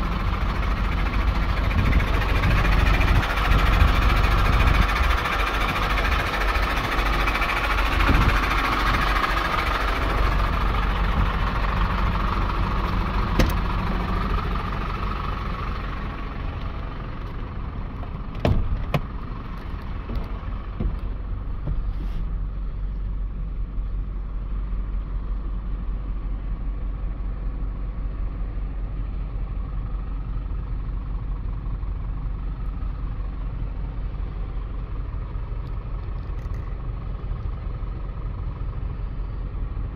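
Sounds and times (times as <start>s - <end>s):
diesel truck idling: 0.0s - 39.9s
sharp thump: 13.4s - 13.6s, 18.4s - 19.1s.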